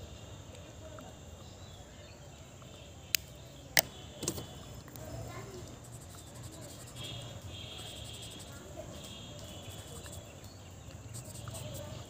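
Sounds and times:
faint background noise: 0.0s - 12.0s
pen clicks: 7.8s - 10.2s, 11.0s - 12.0s.

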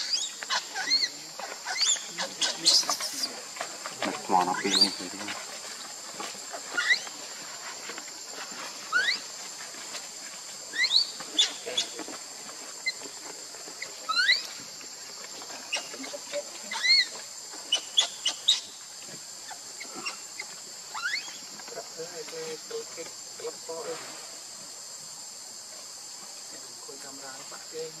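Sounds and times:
baby monkey squealing: 0.0s - 3.3s, 6.8s - 7.1s, 8.9s - 9.3s, 10.7s - 11.9s, 14.1s - 14.5s, 16.7s - 17.1s, 17.7s - 18.7s, 20.9s - 21.4s
insects buzzing: 0.0s - 28.0s.

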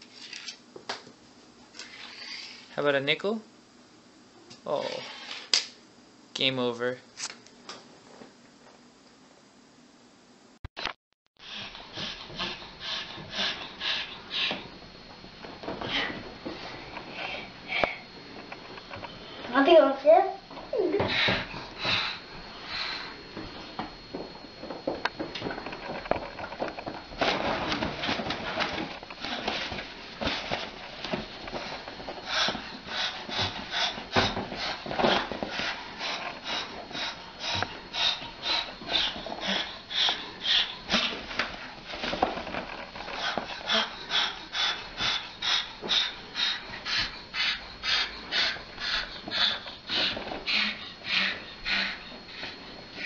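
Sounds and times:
cockatoo breathy huffs: 11.4s - 14.6s, 43.2s - 53.0s.

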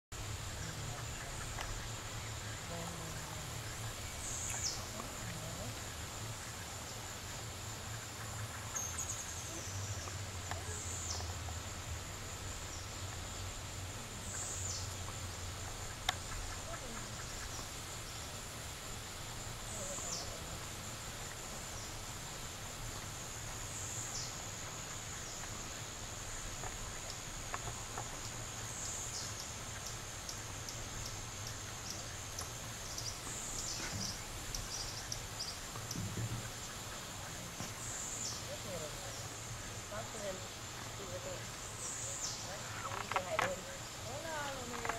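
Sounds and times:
insects droning: 0.1s - 44.9s.

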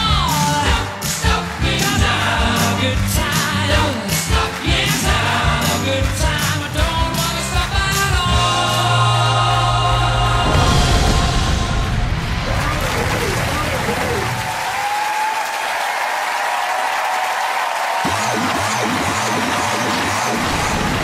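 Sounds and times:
singing over a regular beat: 0.0s - 12.2s.

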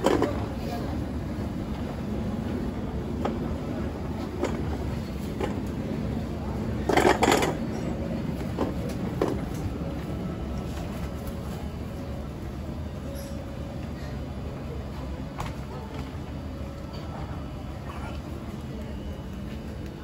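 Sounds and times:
faint voices: 0.0s - 20.0s
low rumble of market noise: 0.0s - 20.0s.

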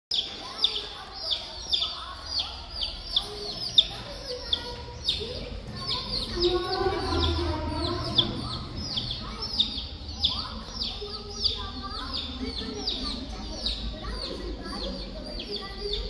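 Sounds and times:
baby chicks peeping: 0.1s - 16.0s.

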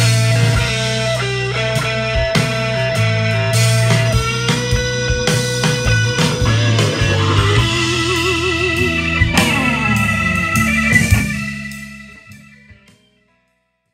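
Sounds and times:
rock music with electric guitar: 0.0s - 13.4s.

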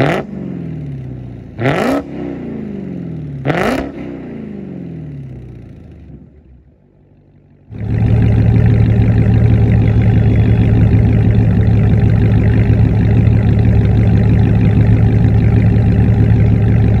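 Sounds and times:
car engine idling: 4.2s - 17.0s.

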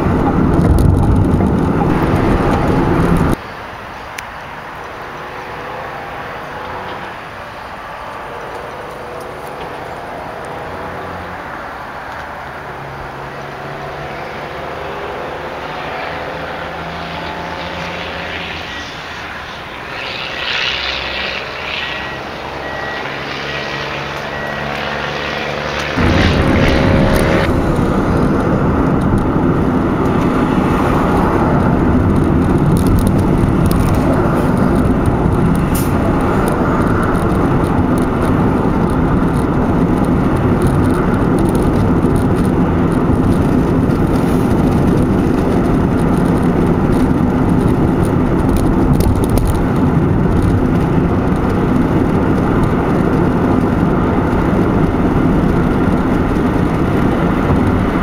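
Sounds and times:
car engine running: 0.0s - 3.4s, 26.0s - 58.0s
tyres on pavement: 0.0s - 58.0s.

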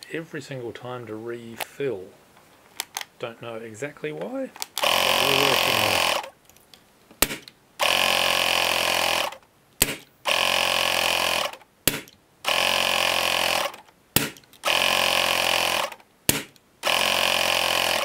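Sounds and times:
air compressor running: 4.8s - 6.3s, 7.8s - 9.4s, 10.3s - 11.6s, 12.5s - 13.8s, 14.6s - 16.0s, 16.8s - 18.0s
air blaster sharp crack: 7.2s - 7.5s, 9.8s - 10.1s, 16.3s - 16.6s.

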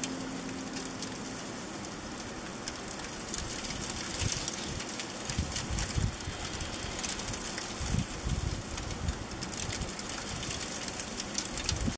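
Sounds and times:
faint crackles: 0.0s - 11.9s
steady hiss: 0.0s - 11.9s
wind buffeting microphone: 3.5s - 10.6s, 11.6s - 11.9s.

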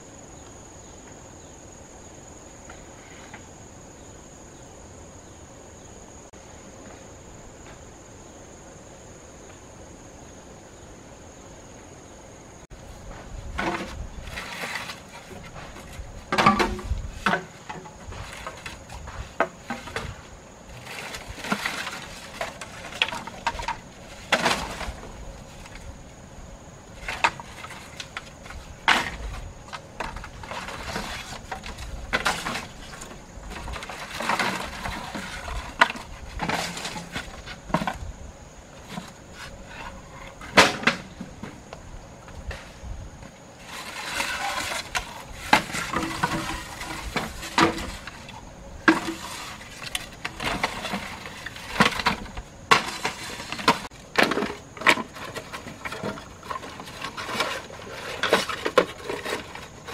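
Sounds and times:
bamboo poles knocking together: 13.1s - 20.2s, 20.8s - 25.8s, 38.8s - 41.6s, 44.2s - 57.6s.

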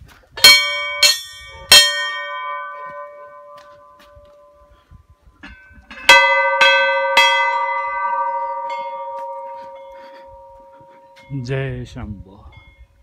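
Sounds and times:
temple bell clanging: 0.4s - 4.6s, 5.4s - 11.5s.

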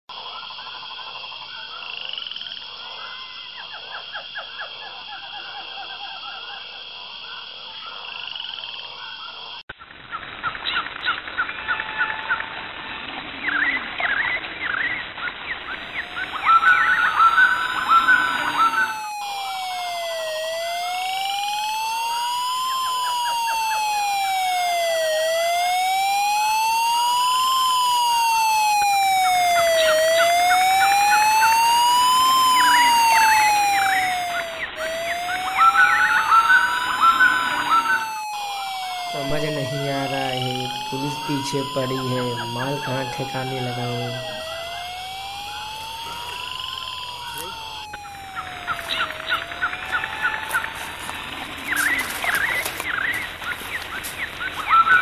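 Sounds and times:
dense chirping calls: 15.5s - 53.4s
steady high drone: 15.6s - 51.1s
wailing siren: 15.6s - 53.2s, 54.6s - 55.0s.

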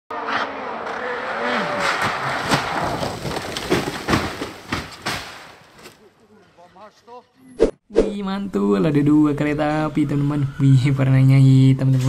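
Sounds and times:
rally car engine revving: 0.1s - 3.0s
engine cracks and bangs: 1.7s - 6.0s.

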